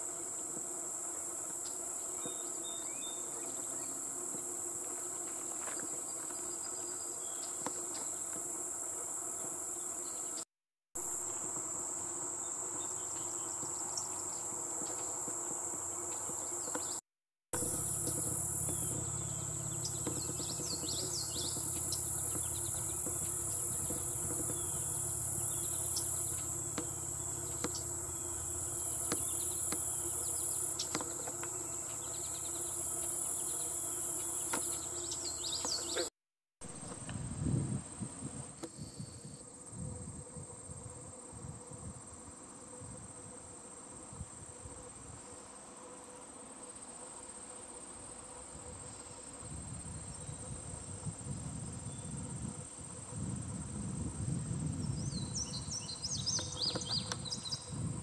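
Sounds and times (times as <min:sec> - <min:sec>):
crickets chorus: 0:00.0 - 0:10.4, 0:11.0 - 0:17.0, 0:17.6 - 0:36.1, 0:36.8 - 0:58.0
short chirping calls: 0:17.6 - 0:36.1.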